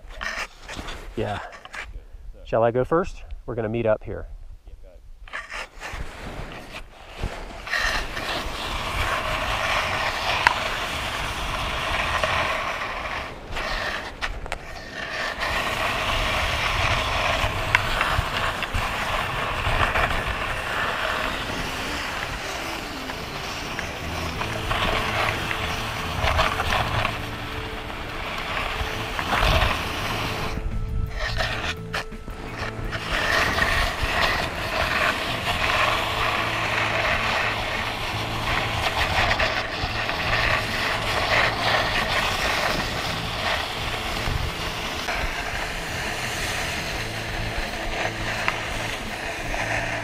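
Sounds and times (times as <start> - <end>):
ice axe dragging in snow: 0.0 - 1.9, 5.3 - 50.0
sliding over snow: 0.0 - 1.9, 5.3 - 50.0
faint music: 14.9 - 50.0.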